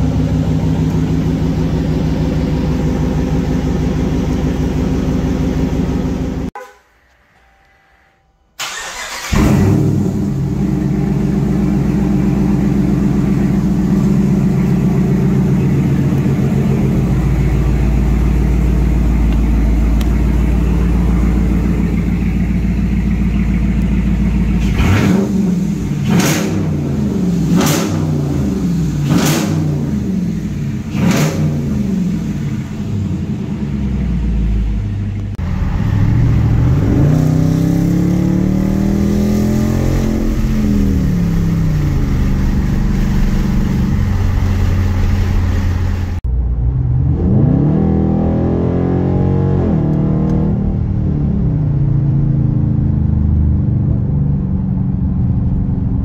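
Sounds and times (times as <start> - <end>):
engine throttle blips: 0.0 - 56.0
car engine fast idle: 8.6 - 26.1.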